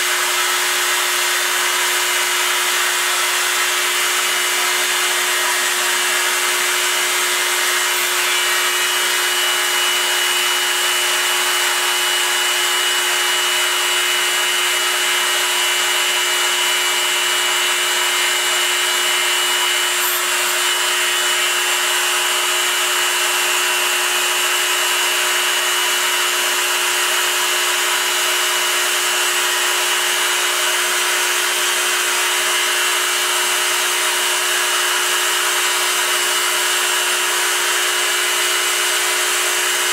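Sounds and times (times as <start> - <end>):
spindle motor hum: 0.4 - 26.2
stepper motors: 3.9 - 13.3, 18.6 - 22.4
thin high whine: 4.6 - 12.4.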